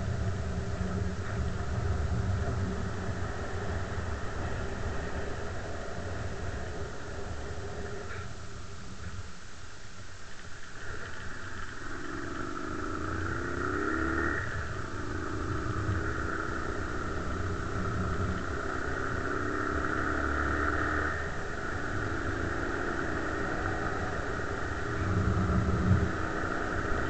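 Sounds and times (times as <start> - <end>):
quad bike engine accelerating: 10.8 - 27.0.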